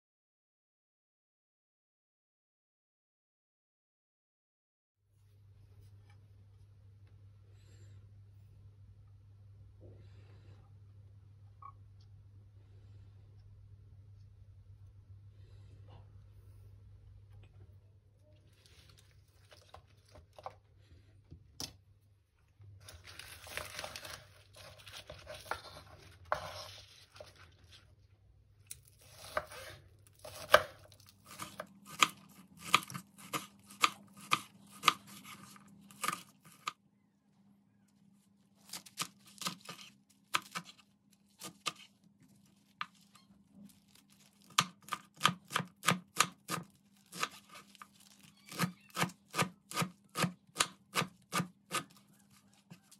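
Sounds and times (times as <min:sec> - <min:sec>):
onions rustling: 0:22.8 - 0:28.0
knife chopping on cutting board: 0:29.1 - 0:36.7.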